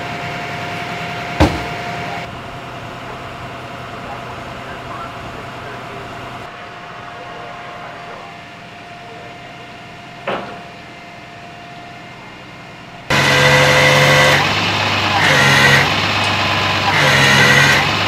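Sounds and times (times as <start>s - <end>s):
truck engine starting: 0.0s - 18.0s
vehicles idling: 0.0s - 18.0s
sharp knock: 1.4s - 1.8s.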